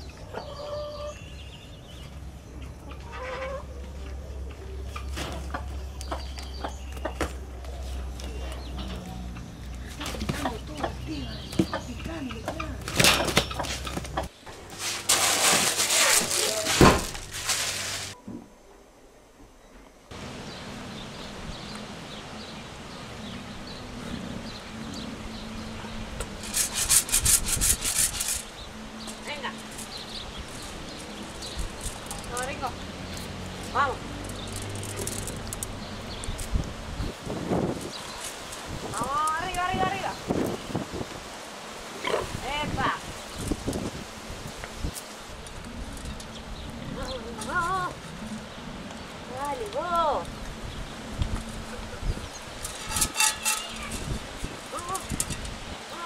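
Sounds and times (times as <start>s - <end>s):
chickens clucking: 0.1s - 1.2s, 2.6s - 14.3s
scuffling rustle: 9.8s - 18.2s
rasping scrapes: 26.4s - 28.5s, 52.7s - 54.2s.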